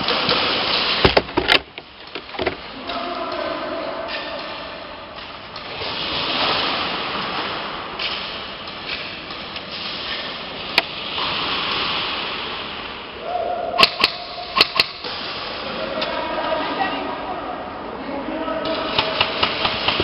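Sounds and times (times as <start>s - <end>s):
airsoft guns firing: 13.8s - 15.0s.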